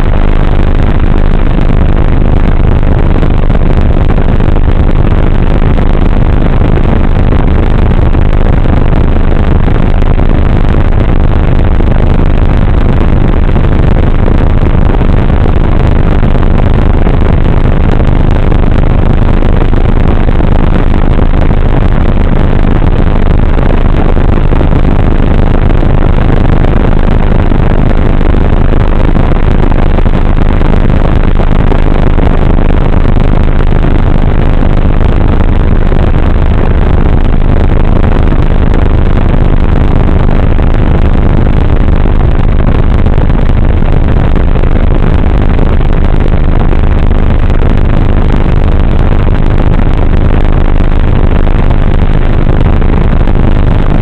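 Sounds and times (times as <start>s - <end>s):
propeller motor noise: 0.0s - 48.1s.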